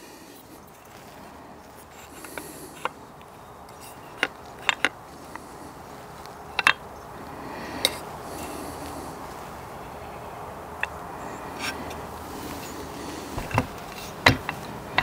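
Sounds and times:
rifle action clicks and knocks: 0:03.7 - 0:05.0, 0:06.6 - 0:06.8, 0:13.4 - 0:15.0.

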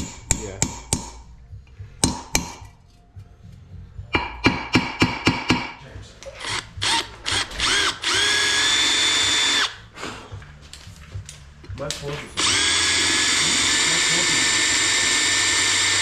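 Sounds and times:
cordless drill whirring: 0:06.4 - 0:09.8, 0:12.4 - 0:16.0.

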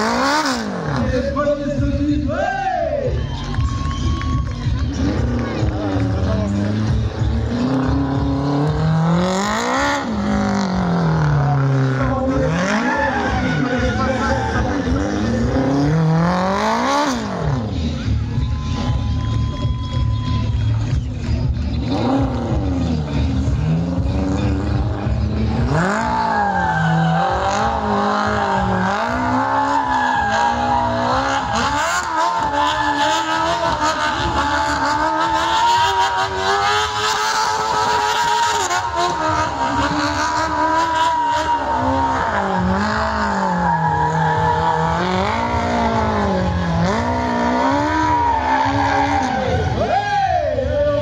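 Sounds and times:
car engine revving: 0:00.0 - 0:02.2, 0:03.2 - 0:51.0
tyres squealing on tarmac: 0:11.5 - 0:16.0, 0:25.7 - 0:51.0.

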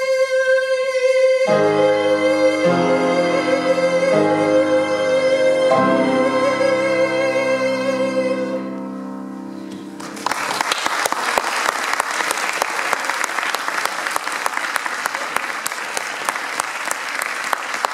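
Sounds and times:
audience applause: 0:10.0 - 0:17.9
sharp close hand claps: 0:10.0 - 0:17.9.

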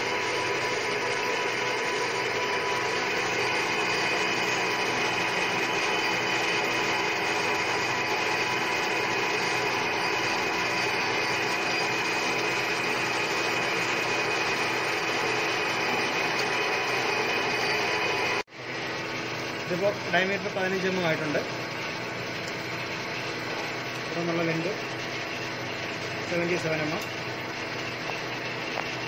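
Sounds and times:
tool cutting metal: 0:00.0 - 0:18.4
lathe whining: 0:00.0 - 0:29.0.

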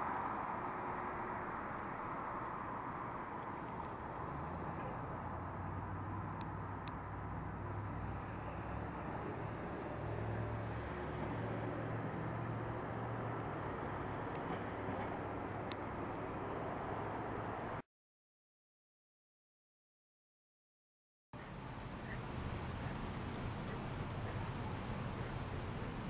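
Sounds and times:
street traffic noise: 0:00.0 - 0:17.8, 0:21.4 - 0:26.0
faint ticks: 0:22.0 - 0:23.8.

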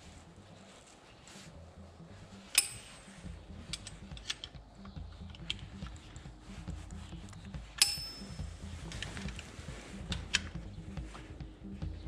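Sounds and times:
light clicks and taps of tools: 0:02.4 - 0:11.3
metallic clink: 0:02.5 - 0:04.6, 0:07.8 - 0:08.5.

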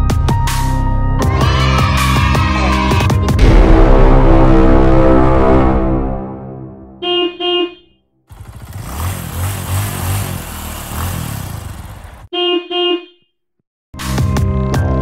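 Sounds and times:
car horn tooting: 0:07.0 - 0:08.0, 0:11.6 - 0:13.3
vehicle engine running: 0:08.3 - 0:12.3.

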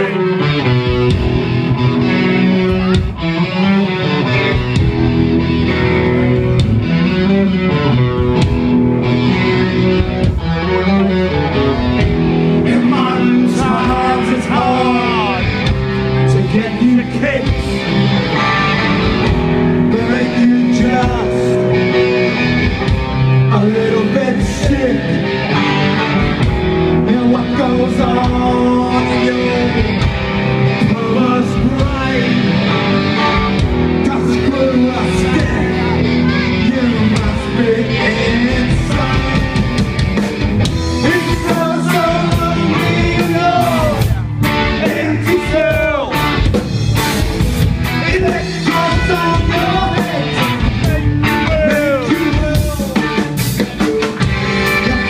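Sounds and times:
punk rock band playing: 0:00.0 - 0:55.0
man singing: 0:10.7 - 0:18.0, 0:19.8 - 0:22.5, 0:23.3 - 0:25.5, 0:26.8 - 0:40.1, 0:40.8 - 0:46.3, 0:47.8 - 0:55.0.

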